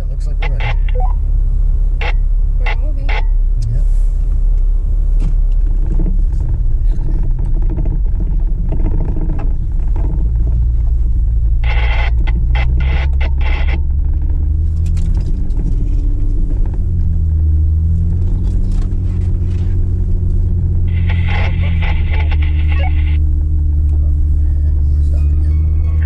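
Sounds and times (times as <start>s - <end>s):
engine rumbling while driving: 0.0s - 26.0s
higher crackly sound: 20.9s - 23.2s.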